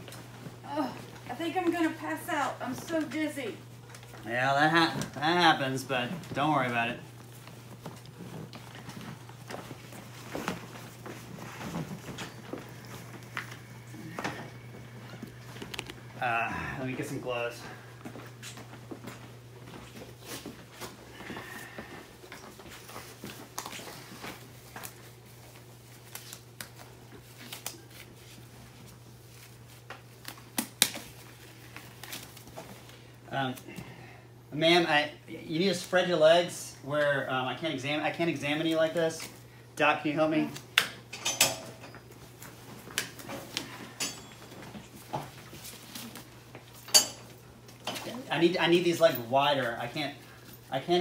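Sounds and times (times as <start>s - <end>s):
rubber gloves rustling: 0.0s - 37.3s, 42.0s - 51.0s
glove cuffs snapping: 29.8s - 32.4s.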